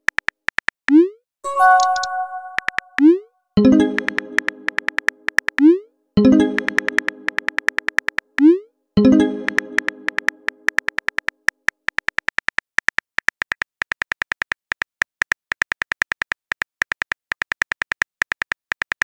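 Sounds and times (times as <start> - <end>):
chime tone: 1.5 - 3.0, 3.6 - 4.7.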